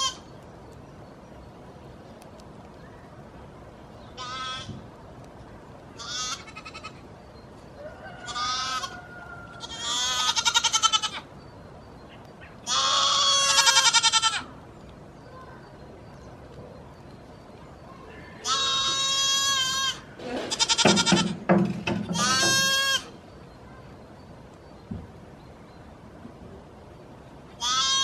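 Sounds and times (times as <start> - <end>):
goat kids bleating: 0.0 - 0.3, 4.2 - 4.8, 6.0 - 7.1, 8.2 - 11.3, 12.6 - 14.6, 18.3 - 21.5, 22.1 - 23.2, 27.6 - 28.0.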